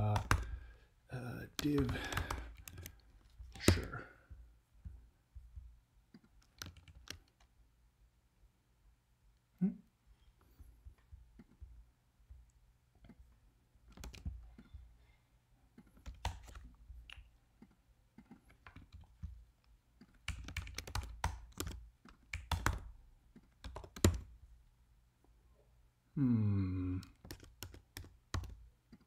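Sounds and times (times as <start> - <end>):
typing on computer keyboard: 0.0 - 0.6, 1.5 - 4.0, 6.2 - 7.5, 13.9 - 14.7, 15.8 - 16.7, 18.2 - 19.4, 20.0 - 24.3, 27.0 - 29.0.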